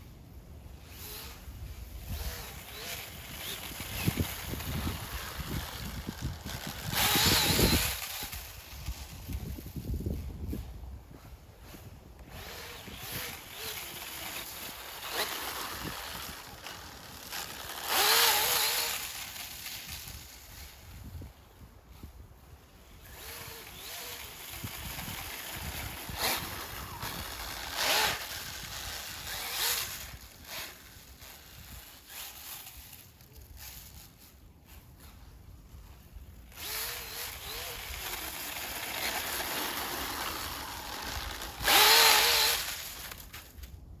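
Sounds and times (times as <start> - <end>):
electric motor whine: 0.8 - 9.1, 12.2 - 20.4, 23.0 - 30.9, 36.6 - 43.3.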